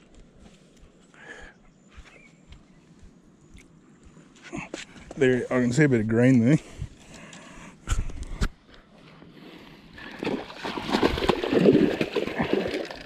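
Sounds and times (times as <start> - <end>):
water splashing against rocks: 10.0 - 13.0.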